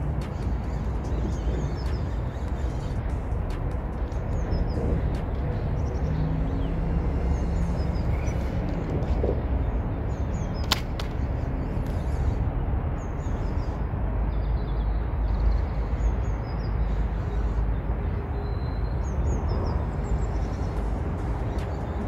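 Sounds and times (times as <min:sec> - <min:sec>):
low outdoor rumble: 0:00.0 - 0:22.0
sharp click: 0:10.6 - 0:11.2.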